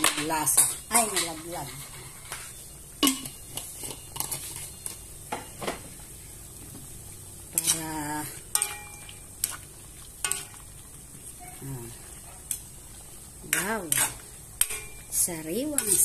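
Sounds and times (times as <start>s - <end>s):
metal utensil scraping wok: 0.0s - 5.2s, 7.4s - 16.0s
faint steady hiss: 0.0s - 16.0s.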